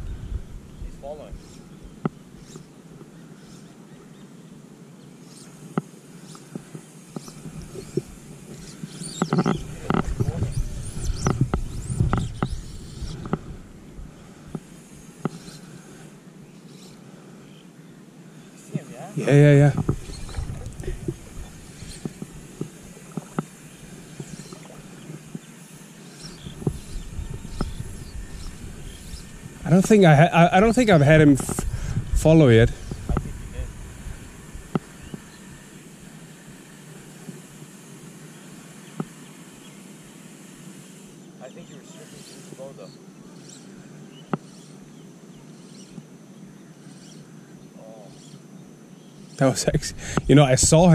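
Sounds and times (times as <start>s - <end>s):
low outdoor rumble: 0.0s - 2.0s, 19.2s - 25.4s, 26.2s - 36.9s
faint clicks and ticks: 5.3s - 13.5s.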